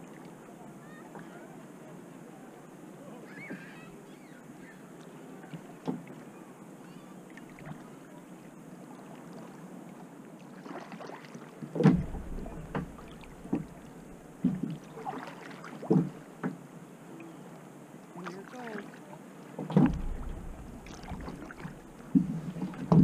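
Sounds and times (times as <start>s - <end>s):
paddle strokes splashing water: 7.3s - 23.0s.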